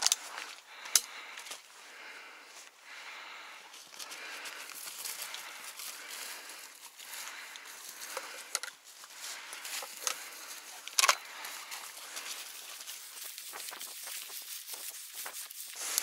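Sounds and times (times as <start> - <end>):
stalks snapping: 0.0 - 1.2
rustling through dry vegetation: 0.0 - 16.0.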